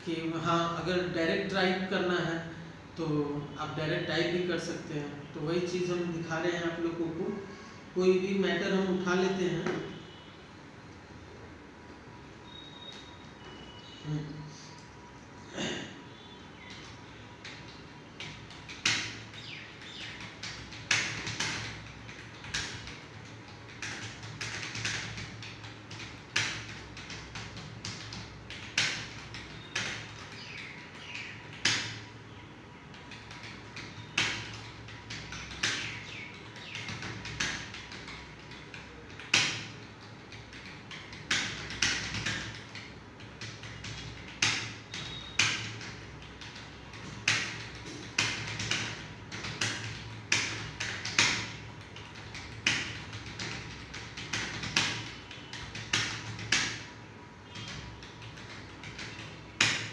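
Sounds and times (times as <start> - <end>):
typing on computer keyboard: 16.6 - 32.2, 32.9 - 59.9.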